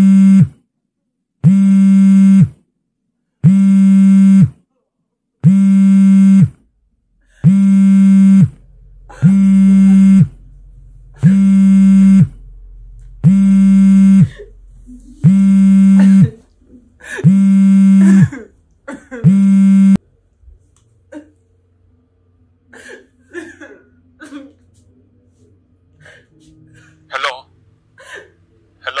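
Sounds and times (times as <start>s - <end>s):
mobile phone buzzing: 0.0s - 0.6s, 1.4s - 2.6s, 3.4s - 4.6s, 5.4s - 6.7s, 7.4s - 10.5s, 11.2s - 12.4s, 13.2s - 14.5s, 15.2s - 16.4s, 17.2s - 18.4s, 19.2s - 20.0s.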